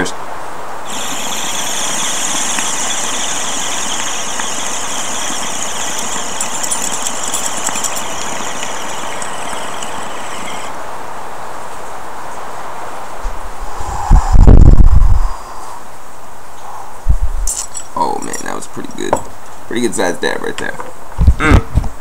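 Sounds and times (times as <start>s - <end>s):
concentrate crackling: 0.9s - 10.7s
airy hiss-whistle through water pipe: 0.9s - 10.8s.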